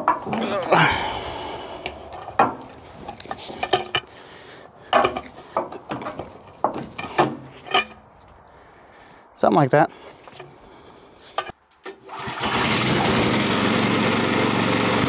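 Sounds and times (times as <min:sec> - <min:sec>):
metal clanks and knocks: 0:00.0 - 0:04.2, 0:04.9 - 0:08.1, 0:11.3 - 0:12.0
metal rattling: 0:00.0 - 0:08.2, 0:11.2 - 0:13.0.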